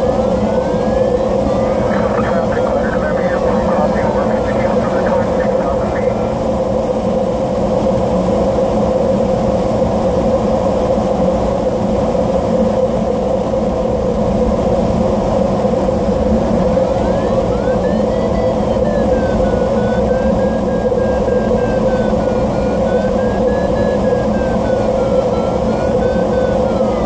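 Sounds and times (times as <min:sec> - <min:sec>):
electronic variometer tone: 0:00.0 - 0:06.6, 0:15.5 - 0:27.0
airflow rushing in cockpit: 0:00.0 - 0:27.0.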